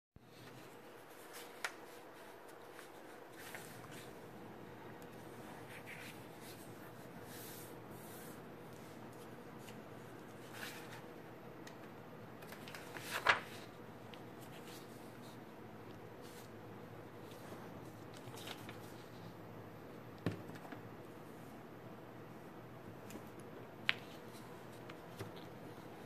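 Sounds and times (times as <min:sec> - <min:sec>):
paper rustling: 0:00.3 - 0:04.2, 0:05.0 - 0:11.1, 0:12.4 - 0:15.4, 0:17.2 - 0:19.4
paper crinkling: 0:12.4 - 0:15.4, 0:17.3 - 0:19.2.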